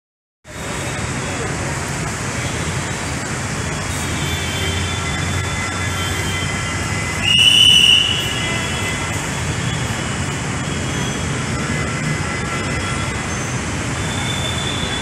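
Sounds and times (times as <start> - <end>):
station and traffic rumble: 0.4 - 15.0
shrill whistle blast: 7.2 - 8.4.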